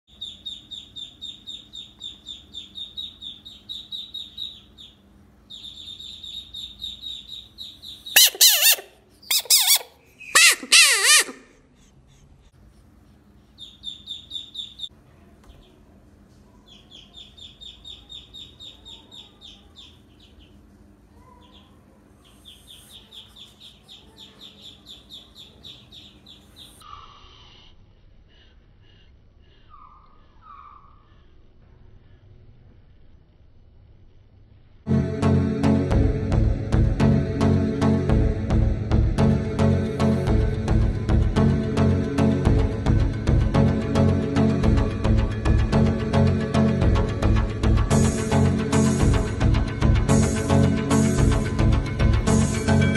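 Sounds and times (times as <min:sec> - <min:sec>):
high rapid chirping: 0:00.1 - 0:11.3
frog screaming: 0:08.2 - 0:11.5.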